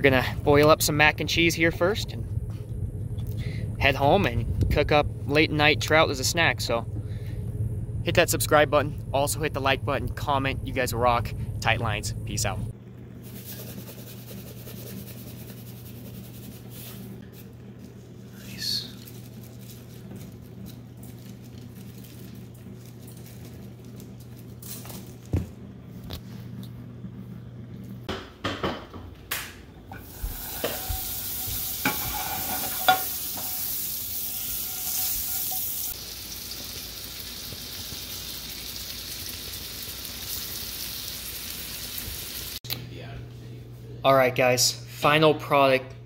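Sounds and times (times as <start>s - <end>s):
low hum: 0.0s - 28.1s, 29.9s - 36.0s
fish sizzling in frying pan: 30.0s - 42.6s
pans and bottles clattering: 31.8s - 33.5s.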